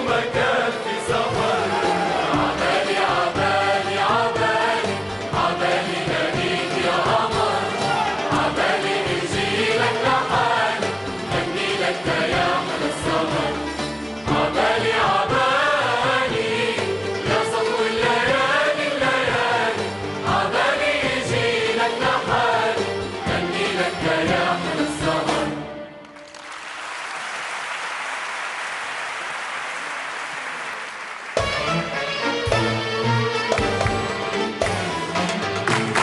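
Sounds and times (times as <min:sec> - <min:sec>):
choir singing with orchestra: 0:00.0 - 0:26.2
audience applause: 0:01.4 - 0:03.2, 0:26.0 - 0:31.9, 0:35.5 - 0:36.0.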